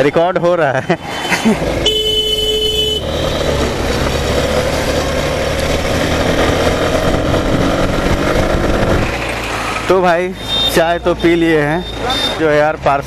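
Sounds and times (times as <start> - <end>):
road noise: 0.0 - 13.0
motorcycle engine running: 1.6 - 9.7
vehicle horn: 1.8 - 3.4, 10.4 - 12.4.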